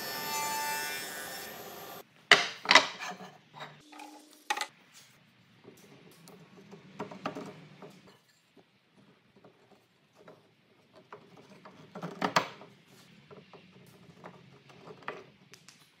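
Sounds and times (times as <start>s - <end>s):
wood knocking and scraping on wood: 2.3s - 3.8s, 5.6s - 15.5s.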